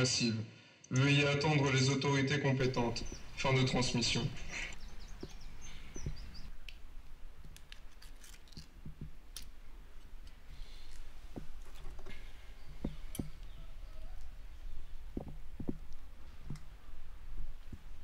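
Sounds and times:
faint low hum: 2.6s - 18.0s.

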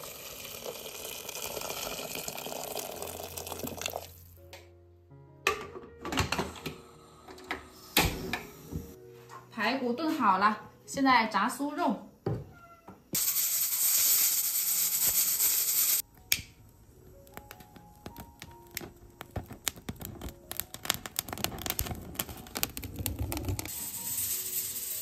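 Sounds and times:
loud steady hiss: 13.2s - 16.0s, 23.7s - 25.0s
pine needles crackling and popping: 16.0s - 23.8s.

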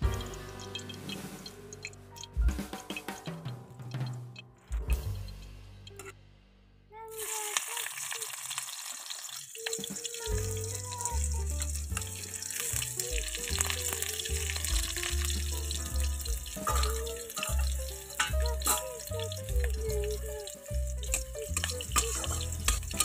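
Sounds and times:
background music: 0.0s - 6.4s, 9.7s - 23.0s
bass line: 0.0s - 7.0s, 10.3s - 23.0s
onions sizzling in oil: 7.1s - 23.0s.

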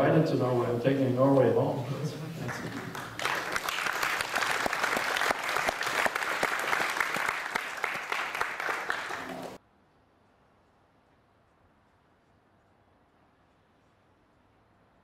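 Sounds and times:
audience applauding: 2.4s - 9.6s.

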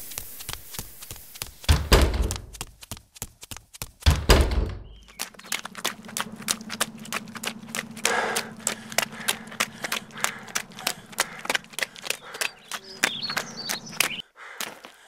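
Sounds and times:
heavy thud: 1.7s - 2.6s, 4.1s - 4.9s
steady low hum: 4.2s - 14.2s.

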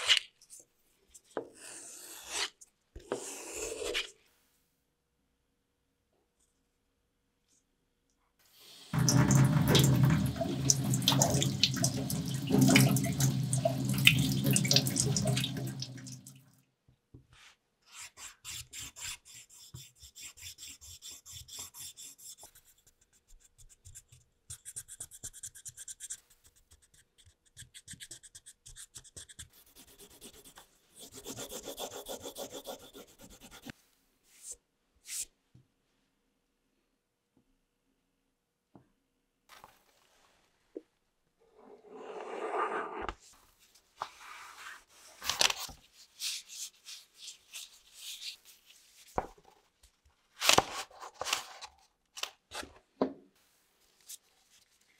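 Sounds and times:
tap water running into sink: 9.0s - 16.4s.

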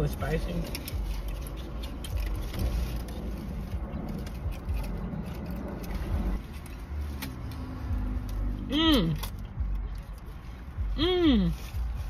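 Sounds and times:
foil rustling and clicks: 0.6s - 7.4s.

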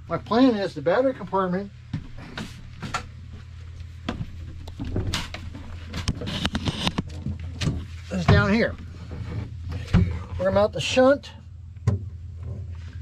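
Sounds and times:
steady low hum: 0.0s - 13.0s
footsteps and knocks in doorway: 7.0s - 8.7s.

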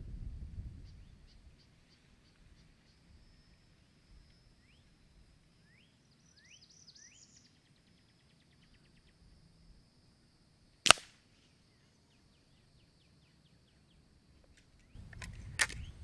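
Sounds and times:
air rifle shot crack: 10.8s - 11.2s.

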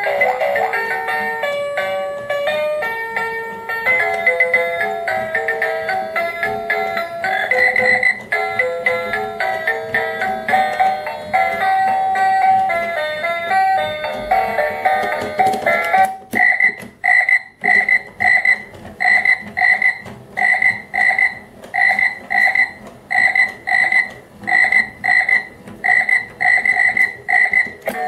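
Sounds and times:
toy frog electronic croaking: 0.0s - 1.2s, 6.4s - 9.2s, 15.0s - 28.0s.

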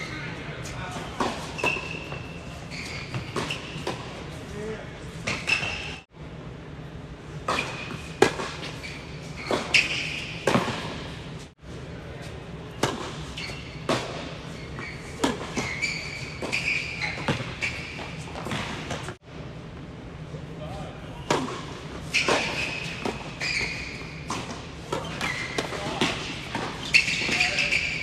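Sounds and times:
tennis balls struck by rackets: 7.4s - 8.8s, 9.4s - 11.1s, 12.8s - 13.2s
tennis balls bouncing on court: 9.4s - 11.0s, 12.8s - 19.2s.

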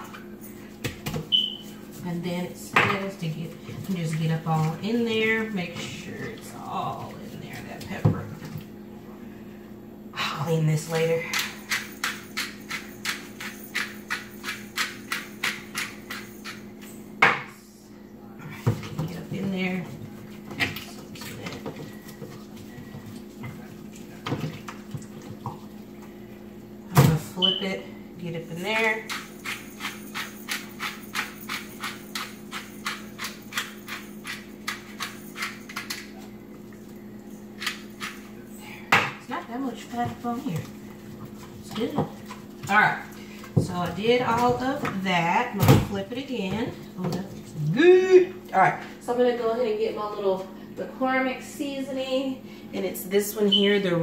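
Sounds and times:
pepper grinder crunching: 29.1s - 36.2s.

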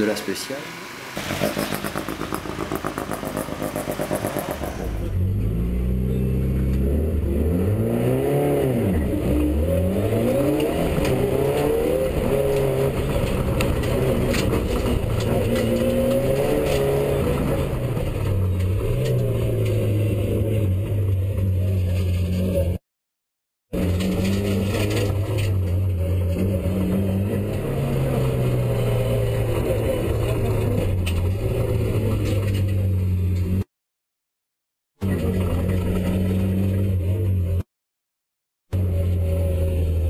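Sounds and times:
car engine revving: 0.0s - 22.8s, 23.8s - 33.7s.

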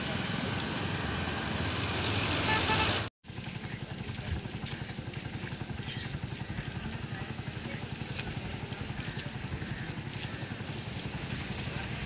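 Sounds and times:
road and wind noise hiss: 0.0s - 3.1s
vehicle engine running: 0.0s - 12.0s.

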